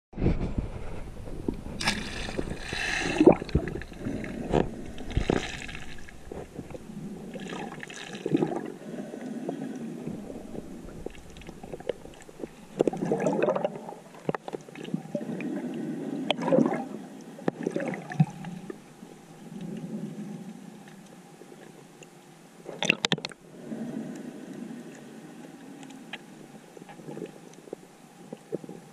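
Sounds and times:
water rushing and gurgling: 1.2 - 19.4.

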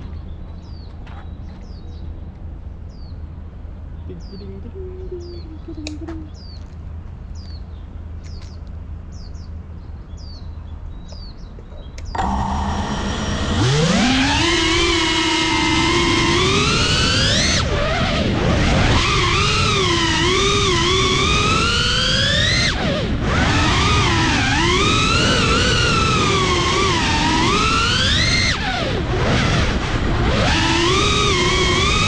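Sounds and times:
bird chirping: 0.0 - 12.5
low background rumble: 0.0 - 32.0
drone motors whining: 12.0 - 32.0.

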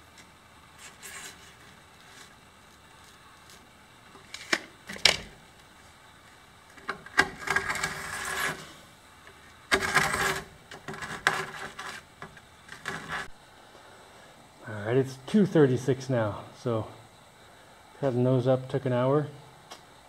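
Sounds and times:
steel tool scraping on stone: 0.8 - 2.4, 7.3 - 8.8, 9.7 - 13.4.

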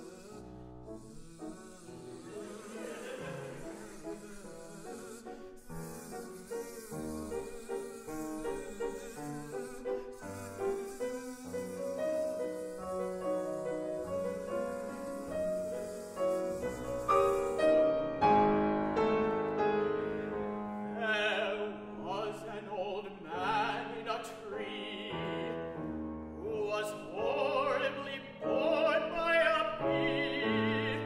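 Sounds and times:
grand piano playing: 0.0 - 31.0
man singing with vibrato: 7.7 - 10.2, 20.9 - 25.6, 26.4 - 31.0.

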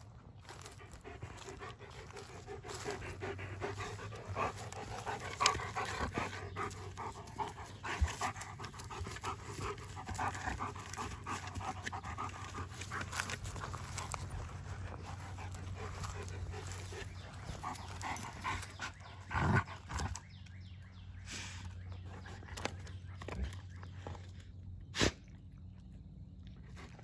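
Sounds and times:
dog panting: 0.4 - 20.2.

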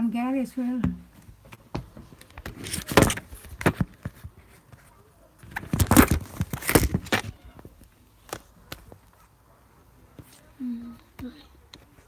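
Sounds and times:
phone handling rustling and knocks: 0.9 - 4.4, 5.4 - 7.3.

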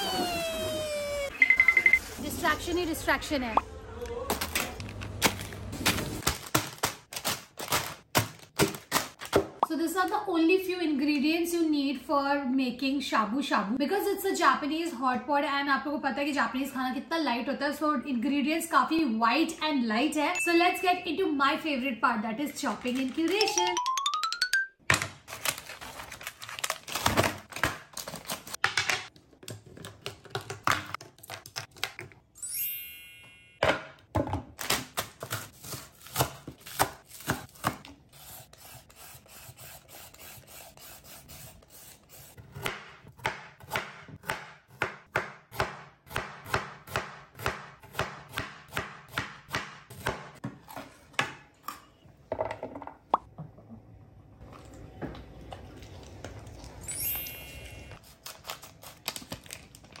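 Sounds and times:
scissors cutting plastic bag: 4.3 - 9.4, 25.2 - 28.6, 34.6 - 38.6, 58.0 - 60.0
peeler scraping carrot: 37.1 - 42.5.

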